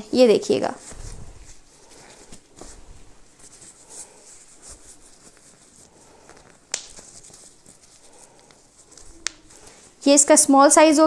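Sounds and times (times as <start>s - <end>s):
fabric rustling: 0.0s - 10.6s.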